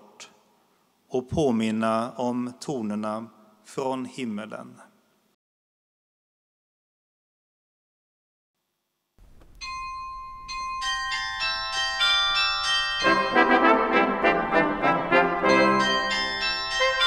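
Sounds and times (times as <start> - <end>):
carillon bells ringing melody: 9.6 - 14.6, 15.4 - 17.0
brass ensemble playing: 13.0 - 17.0.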